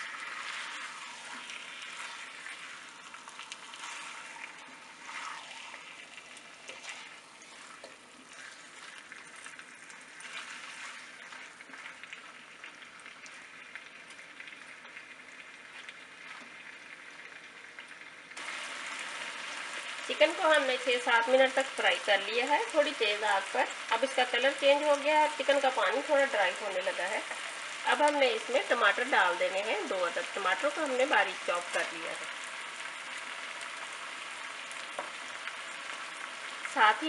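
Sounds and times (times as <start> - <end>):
chicken sizzling in hot oil: 0.0 - 37.0
spatula scraping in wok: 3.7 - 6.0, 6.6 - 9.5.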